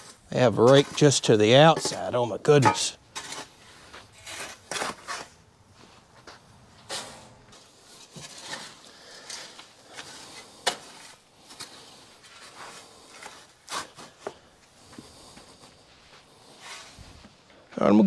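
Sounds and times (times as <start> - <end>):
shovel scraping wood shavings: 0.0 - 5.4, 6.9 - 14.3.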